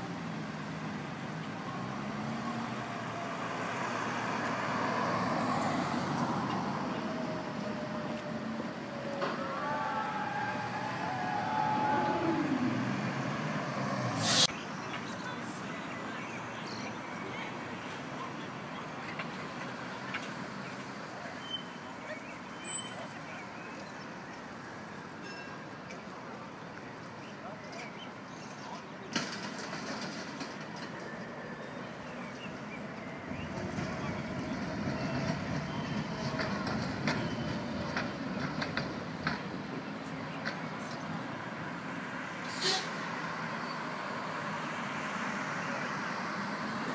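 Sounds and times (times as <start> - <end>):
tram passing: 0.0 - 14.2, 29.2 - 42.4
road noise with whining tones: 0.0 - 46.9
street noise: 0.0 - 46.9
car passing close: 0.7 - 7.6, 9.1 - 14.5.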